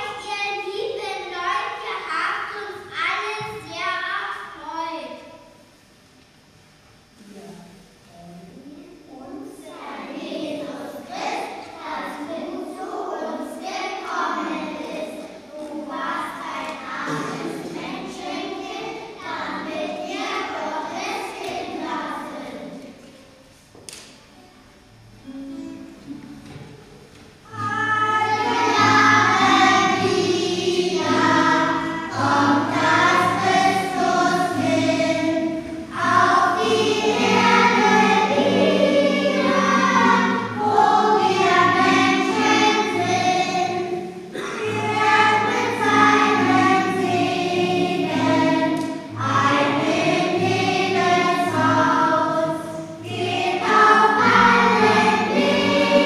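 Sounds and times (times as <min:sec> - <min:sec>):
children singing together: 0:00.0 - 0:00.3, 0:09.6 - 0:22.8, 0:27.5 - 0:56.0.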